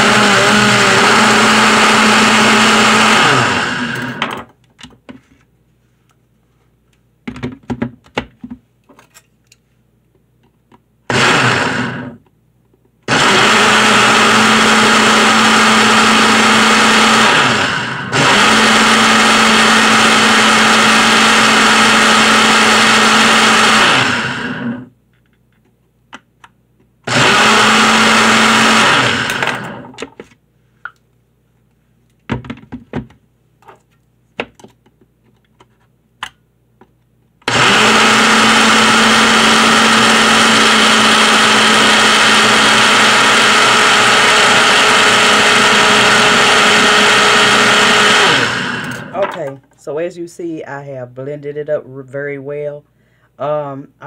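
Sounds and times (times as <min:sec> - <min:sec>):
blender motor running: 0:00.0 - 0:04.2, 0:11.1 - 0:12.2, 0:13.1 - 0:24.9, 0:27.1 - 0:29.9, 0:37.5 - 0:49.2.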